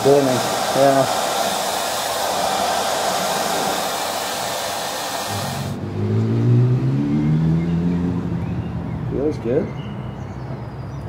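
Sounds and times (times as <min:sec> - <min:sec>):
blower rushing air: 0:00.0 - 0:05.9.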